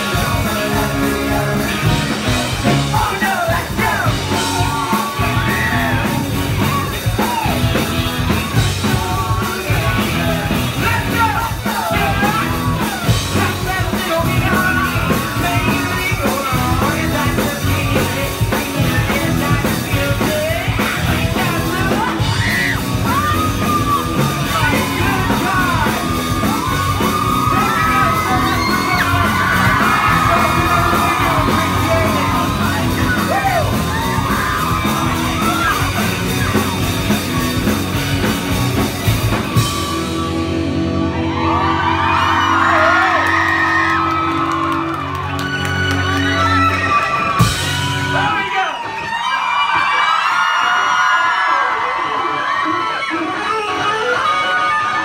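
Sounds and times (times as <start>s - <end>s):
man singing and yelling: 0.0s - 37.7s
rock band playing loudly: 0.0s - 55.0s.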